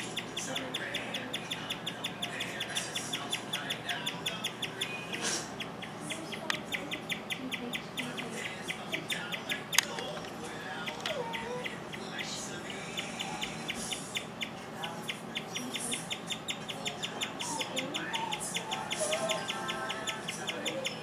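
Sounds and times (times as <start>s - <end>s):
guinea pig chirping: 0.0s - 21.0s.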